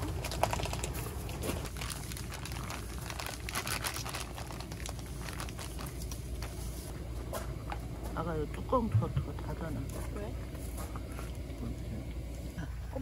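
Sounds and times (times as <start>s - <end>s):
plastic bag crinkling: 0.0s - 6.9s
steady low hum: 0.0s - 13.0s.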